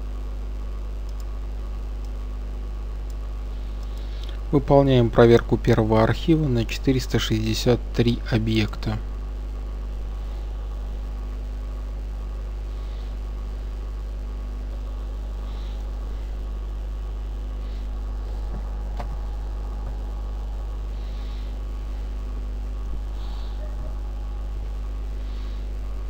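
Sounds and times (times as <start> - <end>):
faint background hiss: 0.0 - 26.0
low electrical hum: 0.0 - 26.0
faint click: 1.0 - 1.3, 3.8 - 4.4.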